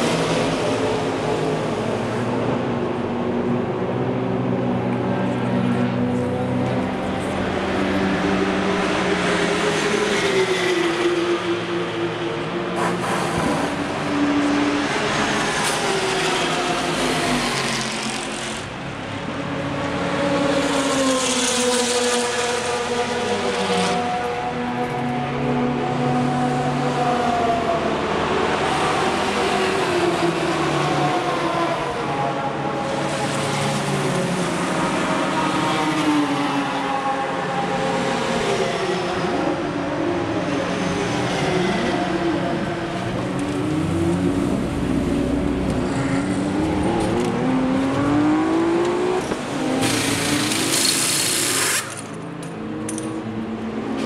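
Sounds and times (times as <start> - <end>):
race car engines revving: 0.0 - 54.0.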